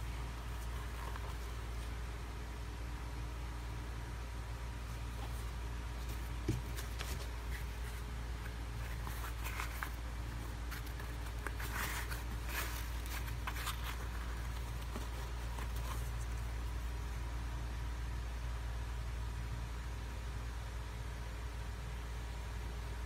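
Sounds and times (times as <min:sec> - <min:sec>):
sneaker rustling and clicking: 0:00.0 - 0:02.2, 0:04.8 - 0:17.2
steady low hum: 0:00.0 - 0:23.0.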